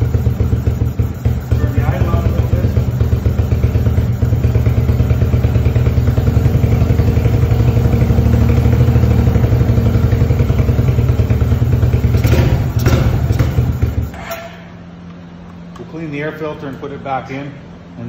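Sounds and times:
engine idling: 0:00.0 - 0:14.2.

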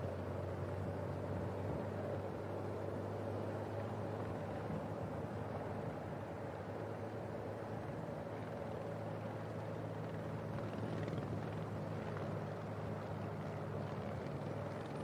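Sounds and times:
helicopter engine and rotor: 0:09.8 - 0:15.0.

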